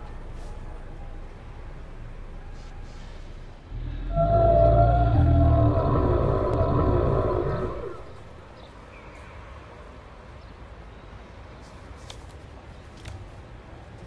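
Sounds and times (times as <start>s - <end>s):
steady low noise: 3.6s - 8.9s.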